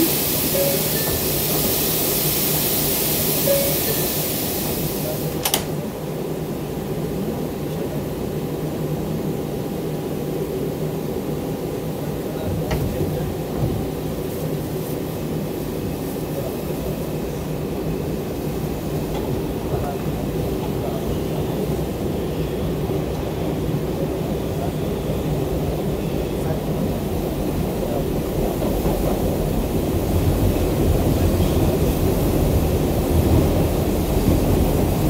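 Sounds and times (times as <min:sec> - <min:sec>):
steady hiss of open doors: 0:00.0 - 0:05.8
subway car rumble: 0:00.0 - 0:35.0
train doors closing knock: 0:05.2 - 0:05.8, 0:12.4 - 0:14.0.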